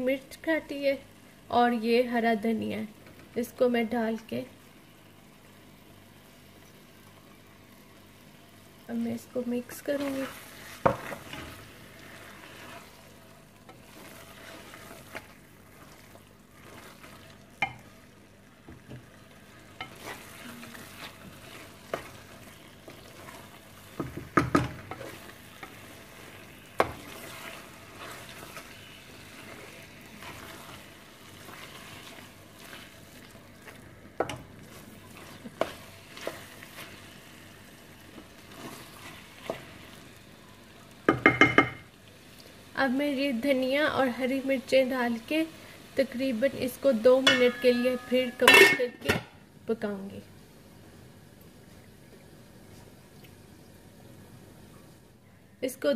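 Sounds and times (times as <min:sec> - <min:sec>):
faint sizzle: 0:00.0 - 0:55.9
spatula stirring curry: 0:09.6 - 0:41.2
spatula knocking against pan: 0:24.0 - 0:24.8, 0:41.1 - 0:41.8.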